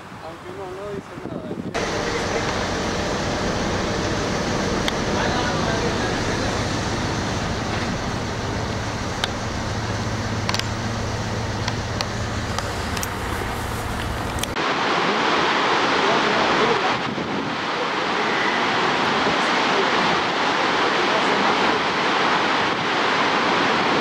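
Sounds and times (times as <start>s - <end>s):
heavy rushing water: 0.0s - 24.0s
low hum: 1.7s - 14.6s.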